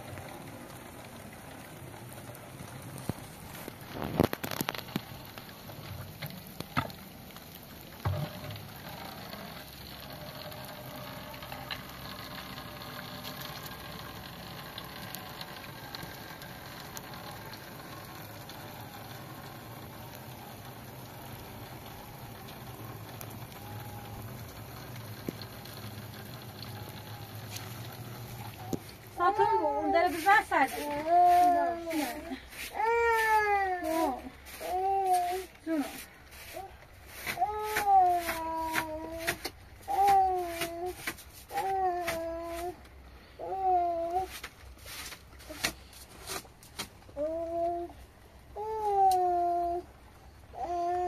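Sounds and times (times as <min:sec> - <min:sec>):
steady rain falling: 0:00.0 - 0:51.0.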